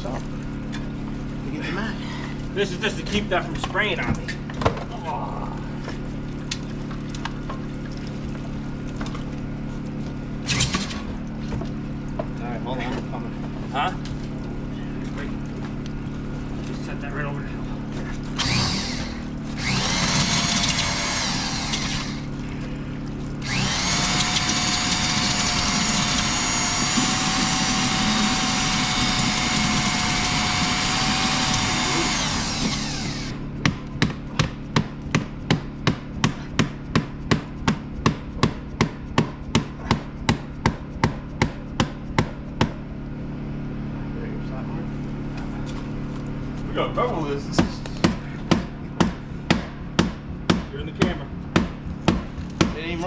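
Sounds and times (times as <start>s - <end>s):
steady engine hum: 0.0s - 53.0s
angle grinder whine: 18.3s - 22.4s, 23.4s - 33.5s
sharp rhythmic strokes: 18.4s - 22.3s, 23.4s - 42.9s.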